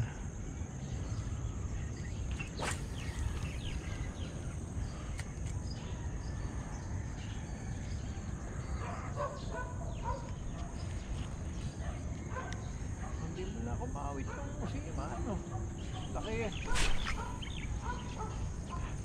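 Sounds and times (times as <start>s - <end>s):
insect drone: 0.0s - 19.0s
bird chirps: 1.8s - 5.9s, 15.8s - 19.0s.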